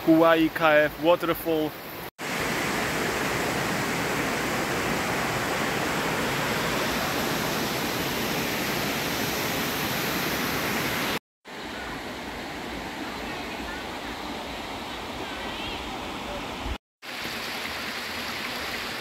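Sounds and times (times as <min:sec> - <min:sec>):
shallow stream flowing: 0:00.2 - 0:19.0
waterfall rushing over rock: 0:02.2 - 0:11.2.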